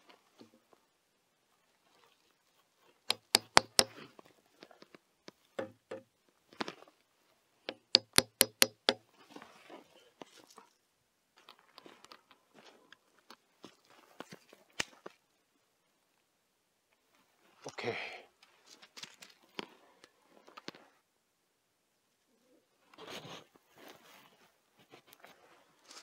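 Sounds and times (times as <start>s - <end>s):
hammer knocking on wooden post: 3.1s - 3.9s, 5.6s - 6.1s, 7.7s - 9.0s
scuffing and handling sounds: 23.8s - 26.0s.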